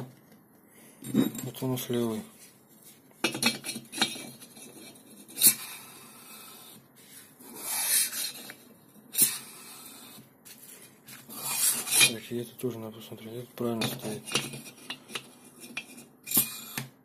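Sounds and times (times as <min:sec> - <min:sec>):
pistons scraping in cylinders: 0:03.3 - 0:10.2, 0:11.1 - 0:12.3, 0:13.8 - 0:16.9.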